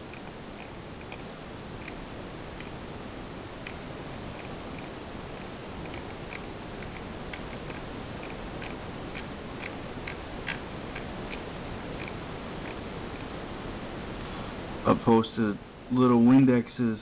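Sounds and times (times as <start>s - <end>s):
steady background hiss: 0.0s - 17.0s
computer mouse clicks: 5.8s - 11.4s.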